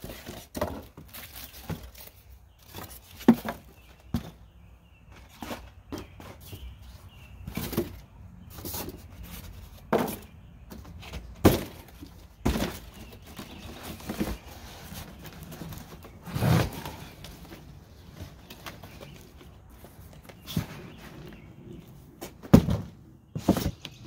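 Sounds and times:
cardboard boxes knocking and rustling: 0:00.0 - 0:21.5, 0:22.2 - 0:24.0
box thudding on concrete: 0:09.8 - 0:14.5, 0:22.2 - 0:24.0.

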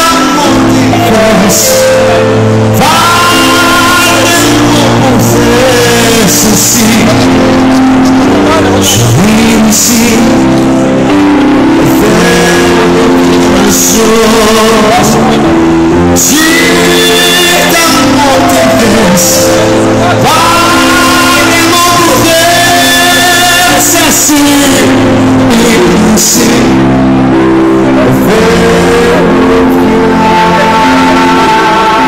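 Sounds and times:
backing band playing: 0:00.0 - 0:32.0
man singing long notes: 0:00.0 - 0:32.0.

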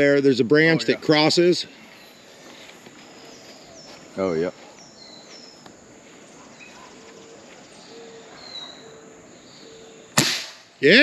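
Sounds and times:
faint bird chirps: 0:01.6 - 0:10.2
rifle shot: 0:10.2 - 0:10.8.

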